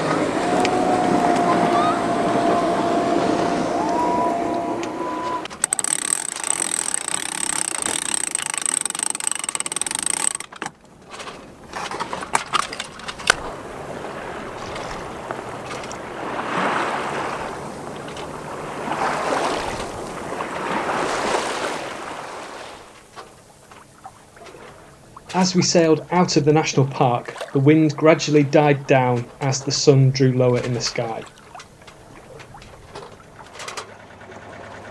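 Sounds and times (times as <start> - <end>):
water rushing along hull: 0.0 - 34.9
winch ratchet clicking: 4.8 - 10.8.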